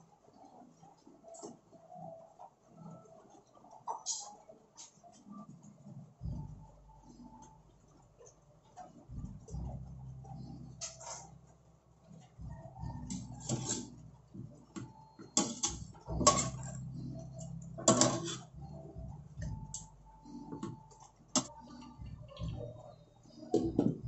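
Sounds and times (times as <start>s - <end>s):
low steady hum: 5.3s - 24.0s
metal utensil scraping a pot: 13.1s - 14.0s, 15.4s - 16.8s, 17.8s - 18.5s.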